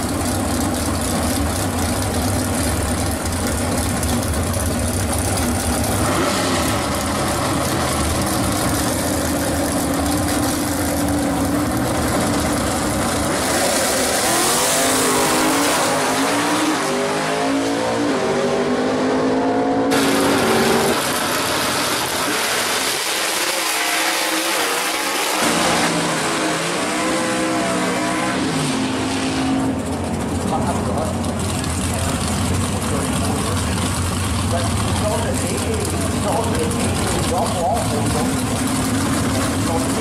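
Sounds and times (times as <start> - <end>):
car engines revving hard: 0.0 - 40.0.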